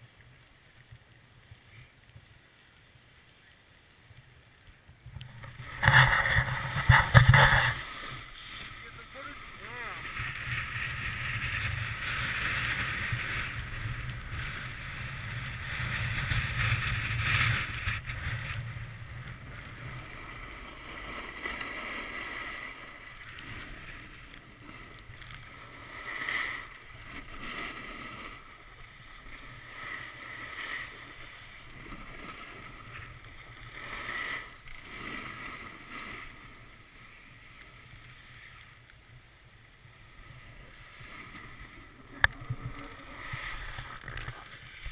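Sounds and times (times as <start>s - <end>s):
wind rushing over microphone: 5.1s - 7.9s
snowboard scraping over snow: 5.2s - 44.9s.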